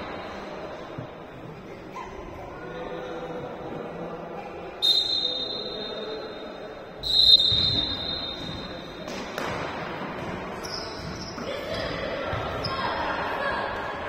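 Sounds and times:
murmur of hall: 0:00.0 - 0:14.0
referee's whistle blasts: 0:04.8 - 0:09.0.

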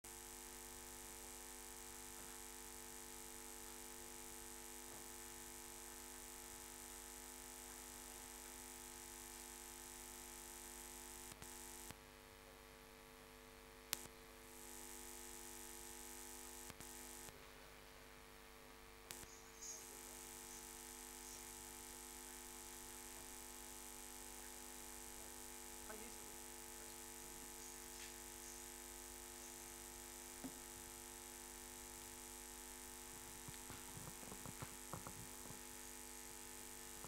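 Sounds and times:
faint mains hum with hiss: 0:00.1 - 0:37.0
clicks: 0:13.9 - 0:14.1, 0:19.1 - 0:19.3, 0:33.4 - 0:35.7.

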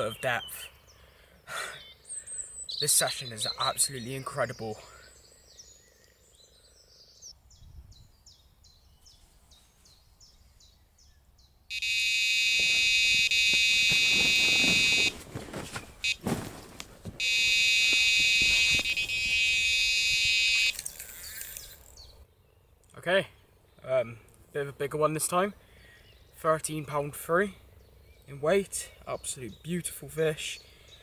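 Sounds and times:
bite alarm high tone: 0:11.7 - 0:15.2, 0:17.2 - 0:20.8.

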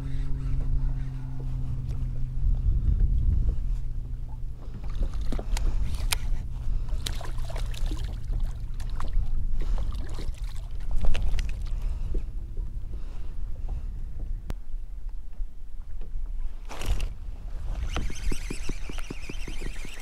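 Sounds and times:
water lapping against hull: 0:00.0 - 0:20.0
wind rumble on microphone: 0:00.0 - 0:20.0.

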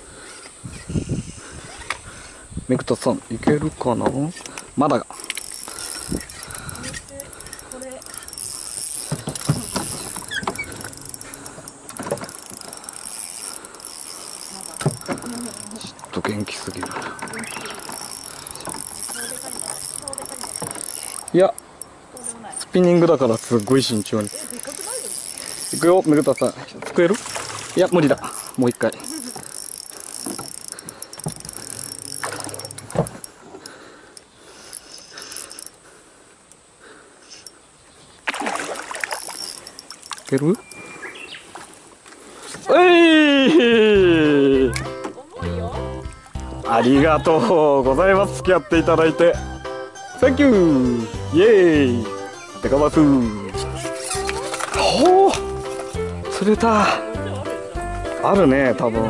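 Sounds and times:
fishing reel clicking: 0:04.4 - 0:26.6, 0:27.2 - 0:35.8, 0:39.0 - 0:40.8, 0:50.1 - 0:55.4
short squeaks: 0:05.4 - 0:22.0, 0:23.4 - 0:26.7
water splashing: 0:05.6 - 0:33.6, 0:38.2 - 0:40.6, 0:53.4 - 0:56.0.

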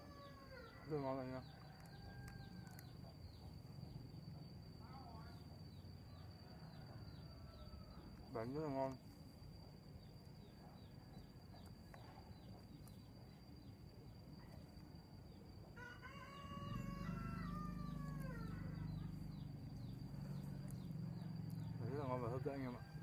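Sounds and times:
rooster crowing: 0:00.0 - 0:02.9, 0:06.1 - 0:08.2, 0:15.7 - 0:23.0
faint high whine: 0:00.0 - 0:23.0
low steady rumble: 0:16.4 - 0:23.0.

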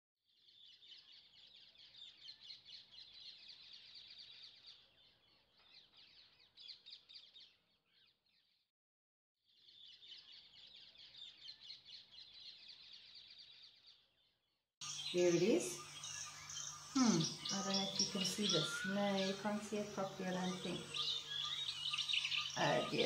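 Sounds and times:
small birds chirping: 0:00.3 - 0:08.6, 0:09.5 - 0:23.0.

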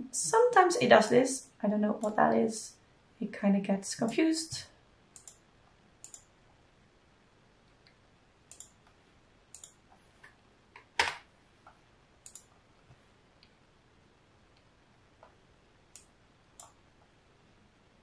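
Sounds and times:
computer mouse clicks: 0:05.1 - 0:05.4, 0:06.0 - 0:06.3, 0:07.7 - 0:12.6, 0:14.6 - 0:16.8.

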